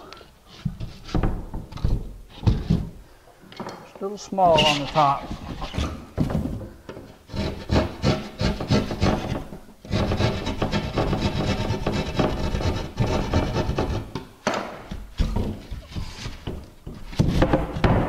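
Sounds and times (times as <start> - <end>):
hand tool scraping drywall: 4.5 - 6.3, 7.0 - 14.2, 14.9 - 18.0.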